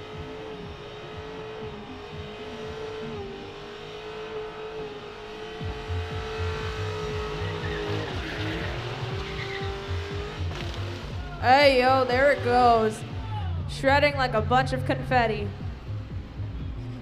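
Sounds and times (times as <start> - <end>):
car engine revving high: 0.0 - 17.0
tyre squeal: 7.1 - 11.2.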